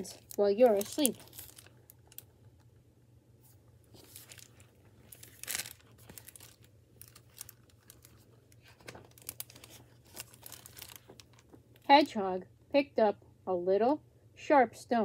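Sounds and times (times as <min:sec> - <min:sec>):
book rustling and crinkling: 0:00.0 - 0:02.5, 0:03.4 - 0:12.1.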